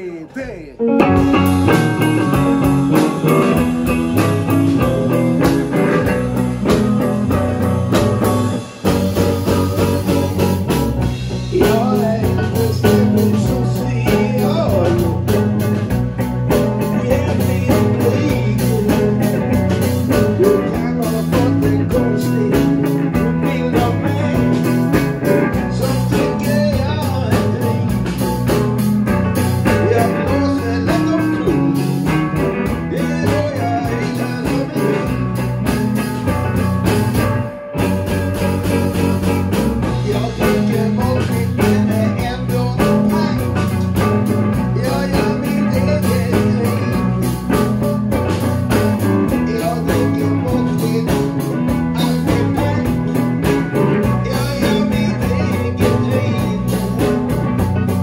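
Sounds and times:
man singing into a microphone: 0.0s - 0.9s, 9.6s - 28.4s, 29.4s - 35.8s, 39.8s - 57.7s
drum kit: 0.0s - 58.0s
electric guitars: 0.0s - 58.0s.

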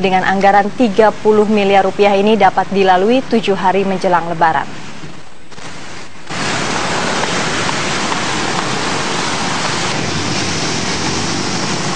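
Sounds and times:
road traffic passing: 6.4s - 11.9s.

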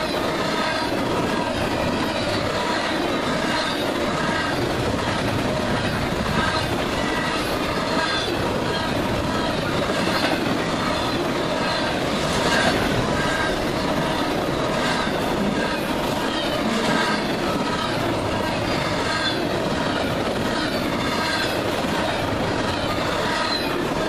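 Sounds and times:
train wheels rumbling on track: 0.0s - 24.0s
high-pitched wheel squeals: 6.4s - 21.7s, 22.7s - 23.9s.

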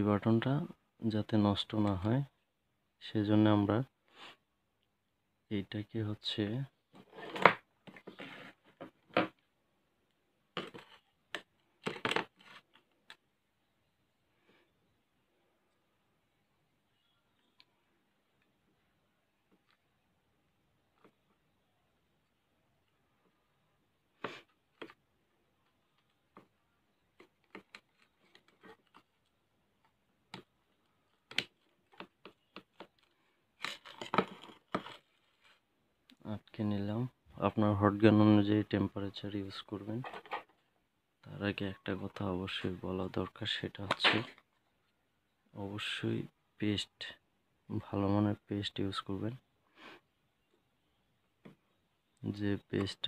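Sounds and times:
small clicks and taps: 25.6s - 35.0s.

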